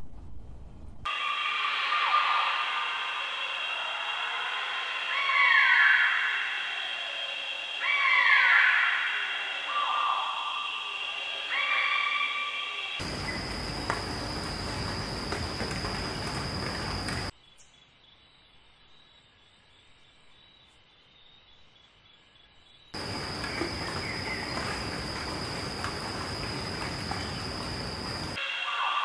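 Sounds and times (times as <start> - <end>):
high-pitched insect drone: 1.1 - 17.3, 23.0 - 29.0.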